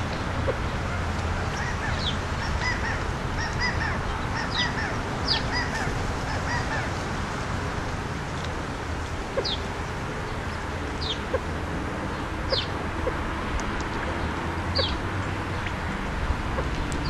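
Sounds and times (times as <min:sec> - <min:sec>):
quail clucking calls: 0:09.3 - 0:09.6, 0:11.1 - 0:11.5.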